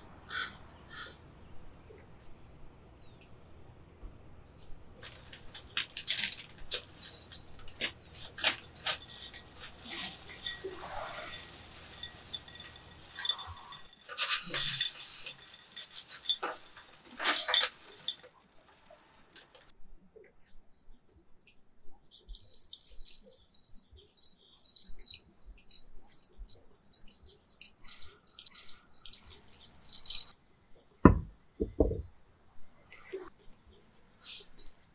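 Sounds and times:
almonds clattering into glass bowl: 5.0s - 19.7s, 22.2s - 30.3s
water pouring onto almonds: 22.2s - 30.3s.

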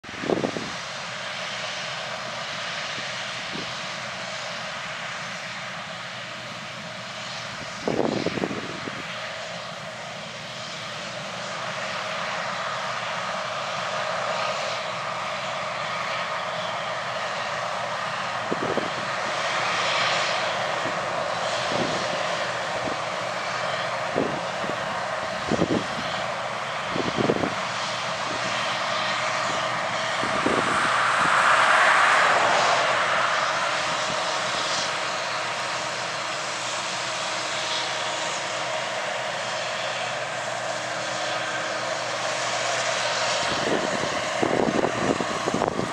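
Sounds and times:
combine harvester drone: 0.0s - 45.9s
wind bumps on microphone: 30.2s - 34.3s, 43.5s - 45.9s.

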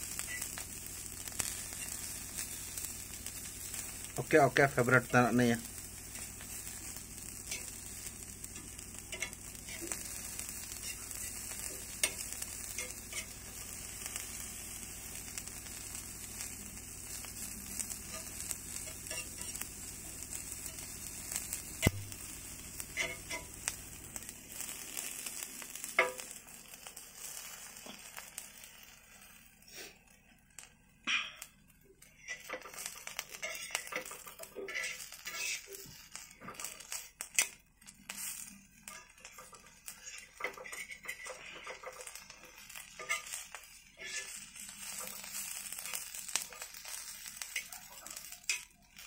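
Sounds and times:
prawns sizzling in oil: 0.0s - 49.0s
metal spatula scraping pan: 6.4s - 8.0s, 18.0s - 19.6s, 23.0s - 23.5s, 32.2s - 37.5s, 38.1s - 47.0s.

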